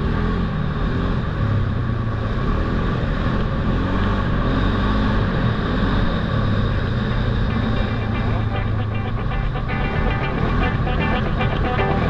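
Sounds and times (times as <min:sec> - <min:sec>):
quad bike engine running: 0:02.9 - 0:08.8.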